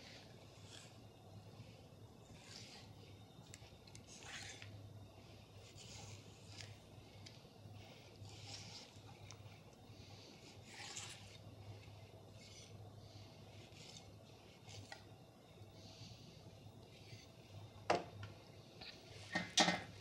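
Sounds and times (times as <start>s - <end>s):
knife scraping fish fillet: 2.2s - 4.8s, 8.2s - 9.4s, 10.5s - 12.8s.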